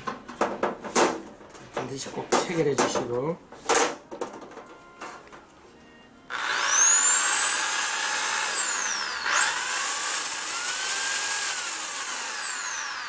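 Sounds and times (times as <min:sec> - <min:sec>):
electric drill whining: 0:06.3 - 0:13.0.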